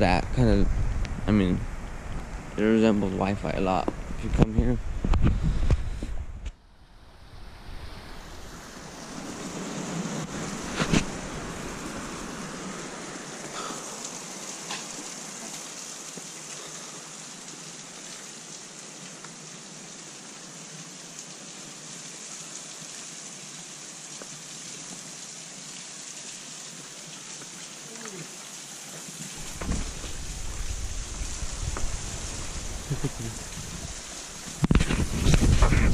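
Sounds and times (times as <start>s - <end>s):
ocean surf hissing: 7.0s - 15.4s, 29.3s - 34.4s.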